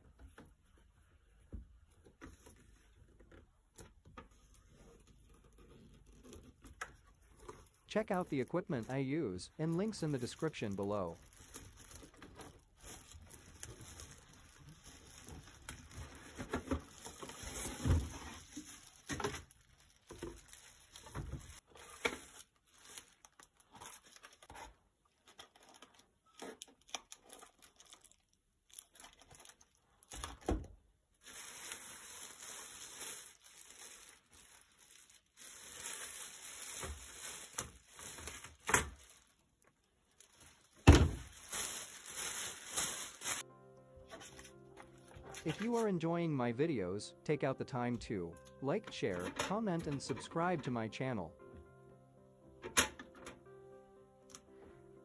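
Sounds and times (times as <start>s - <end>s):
plastic wrap crinkling: 4.4s - 30.5s, 31.2s - 43.5s.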